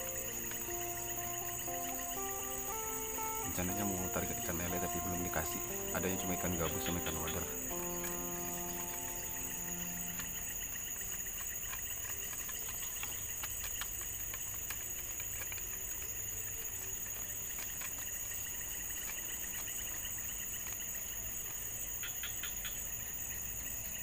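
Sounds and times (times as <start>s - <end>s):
faint clicks: 0.0s - 22.8s
high-pitched insect chorus: 0.0s - 24.0s.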